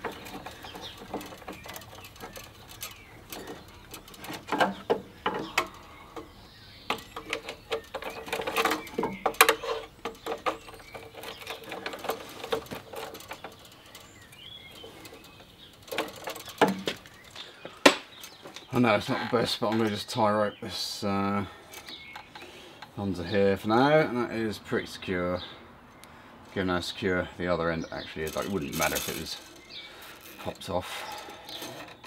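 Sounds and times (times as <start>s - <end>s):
metal part clicking and rattling: 0.0s - 6.3s.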